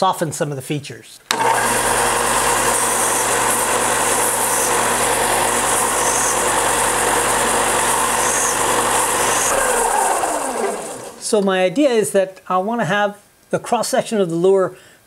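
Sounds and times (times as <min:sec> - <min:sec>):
belt sander running: 0:01.3 - 0:11.4
belt sander winding down: 0:01.3 - 0:11.4.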